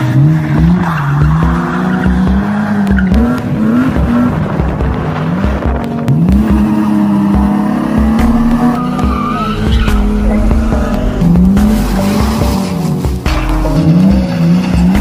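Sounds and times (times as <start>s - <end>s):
car engine revving: 0.0s - 15.0s
music with thumping beat: 0.5s - 15.0s
tyres squealing: 8.0s - 15.0s.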